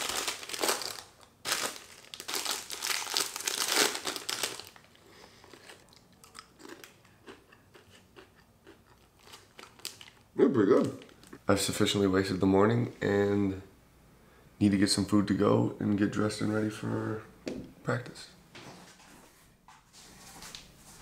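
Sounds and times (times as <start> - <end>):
snack packaging crinkling: 0.0 - 11.4
snack being chewed: 4.7 - 10.3.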